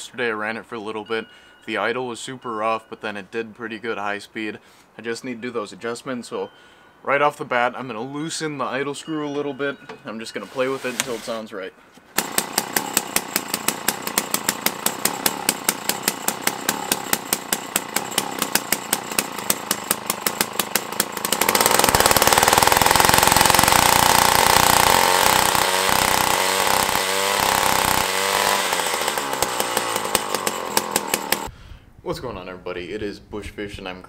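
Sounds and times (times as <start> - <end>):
two-stroke engine idling and revving: 12.2 - 31.5.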